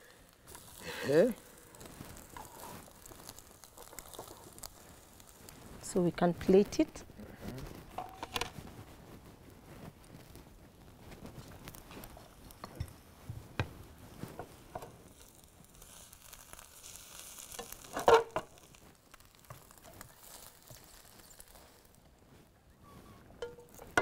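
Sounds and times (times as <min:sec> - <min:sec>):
omelette sizzling in frying pan: 0:00.0 - 0:24.0
spatula scraping and tapping pan: 0:23.4 - 0:24.0.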